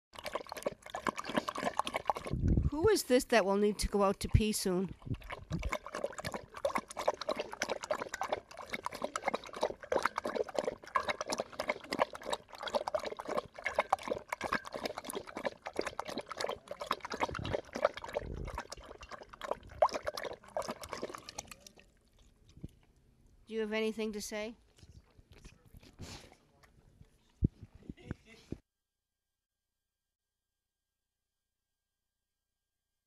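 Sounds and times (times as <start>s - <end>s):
dog lapping water: 0.2s - 23.0s.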